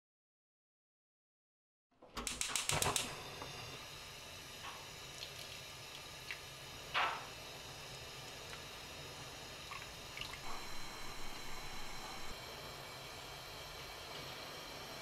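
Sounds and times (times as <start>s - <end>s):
sharp clicks: 2.2s - 3.1s
broth bubbling in a pot: 3.0s - 15.0s.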